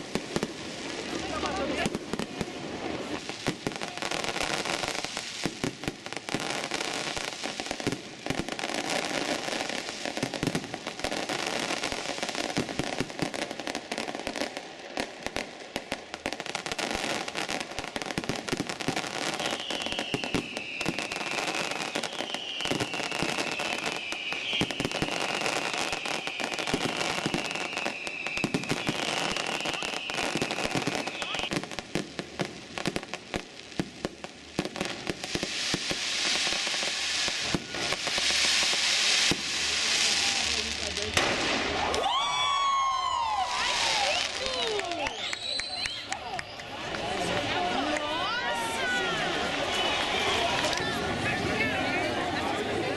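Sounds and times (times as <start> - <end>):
fireworks crackling and popping: 0.0 - 52.9
high falling whistles: 19.4 - 31.5, 45.0 - 46.1.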